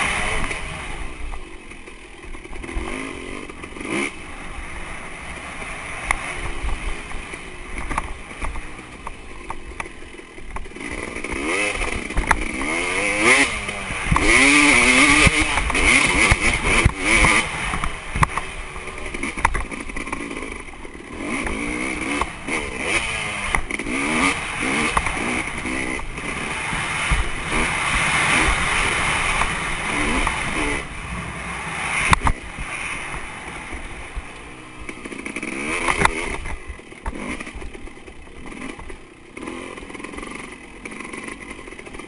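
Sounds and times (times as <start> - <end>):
dirt bike engine revving: 0.0 - 42.0.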